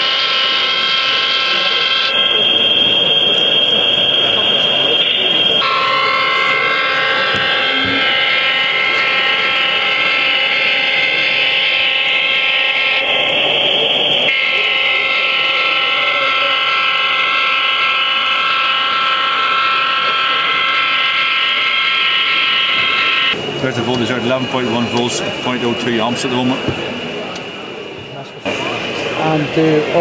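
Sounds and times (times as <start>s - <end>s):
model train air horn: 0.0s - 23.4s.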